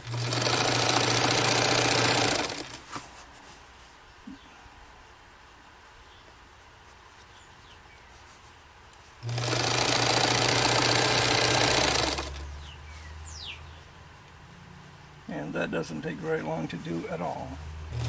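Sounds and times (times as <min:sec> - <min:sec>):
sewing machine stitching: 0:00.0 - 0:02.8, 0:09.2 - 0:12.5
low motor hum: 0:17.3 - 0:18.0.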